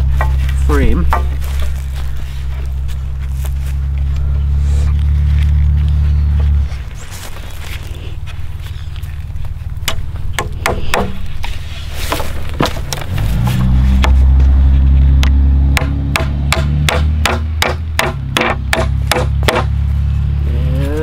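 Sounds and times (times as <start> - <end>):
low drone: 0.0 - 21.0
hammer striking nails into wood: 9.9 - 11.2, 15.8 - 19.7.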